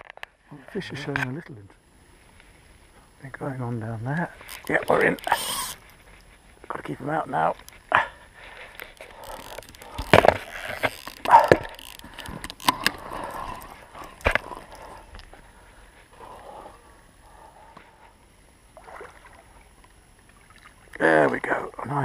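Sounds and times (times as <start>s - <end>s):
fishing gear knocks and rustles: 4.4s - 6.8s, 7.5s - 16.1s.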